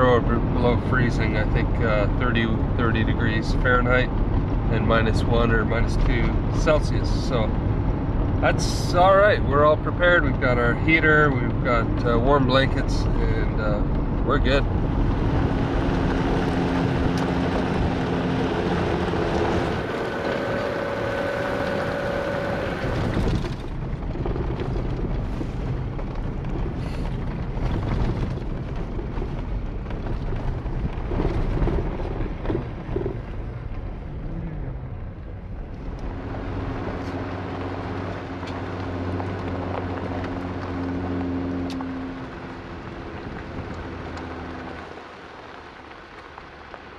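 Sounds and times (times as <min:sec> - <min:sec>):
car engine drone: 0:00.0 - 0:46.9
tyres on dirt track: 0:00.0 - 0:46.9
strong wind: 0:12.6 - 0:45.0.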